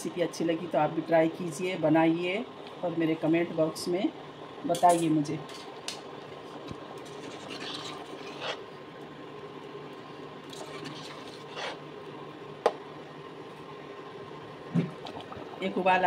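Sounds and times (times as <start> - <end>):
steady low hum: 0.0 - 16.0
metal ladle scraping a pot: 7.0 - 8.6, 10.5 - 11.8.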